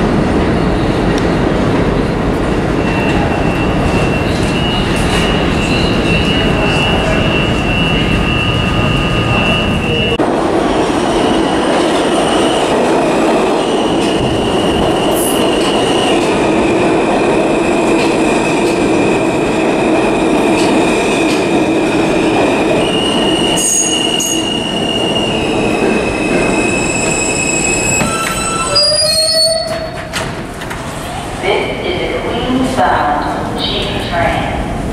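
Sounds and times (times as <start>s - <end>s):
subway cars rumbling and clattering: 0.0s - 34.9s
train wheels squealing: 2.8s - 10.2s, 22.7s - 30.0s.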